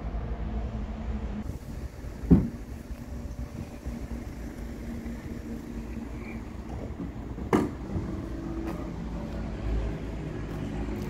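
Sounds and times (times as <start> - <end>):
vehicle engine idling: 0.0 - 11.0
sharp thump: 2.2 - 2.6.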